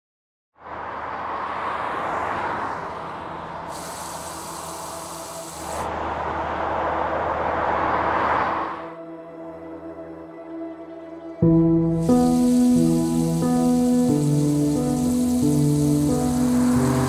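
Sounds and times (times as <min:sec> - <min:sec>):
rushing hiss of noise: 0:03.6 - 0:06.2, 0:11.8 - 0:17.0.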